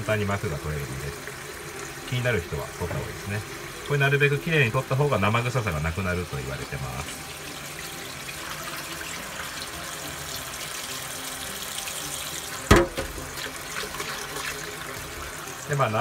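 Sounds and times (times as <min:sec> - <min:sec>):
tap water splashing into bowl: 0:12.5 - 0:15.2
sharp knock: 0:12.7 - 0:13.3.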